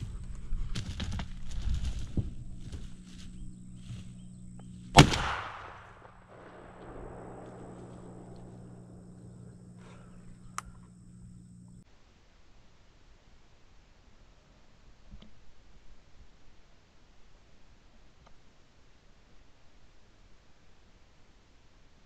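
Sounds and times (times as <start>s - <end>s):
handling rustles and knocks: 0.0s - 5.0s
low steady hum: 0.0s - 11.8s
shotgun shot with echo: 4.9s - 9.1s.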